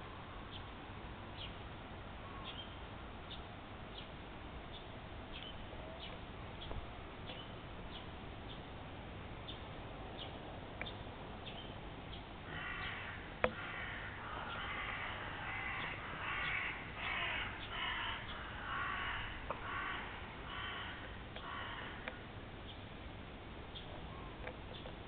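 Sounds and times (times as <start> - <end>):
crows cawing: 12.5 - 22.2.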